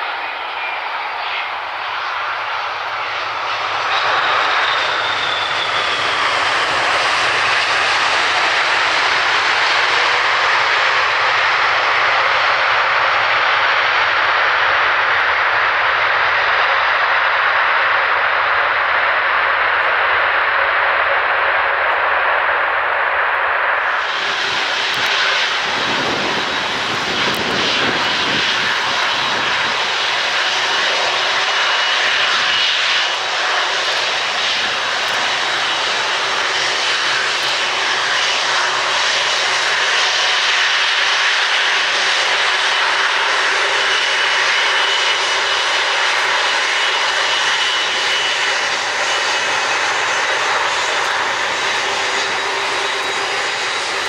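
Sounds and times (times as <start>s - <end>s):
airliner jet engines running: 0.0s - 54.0s.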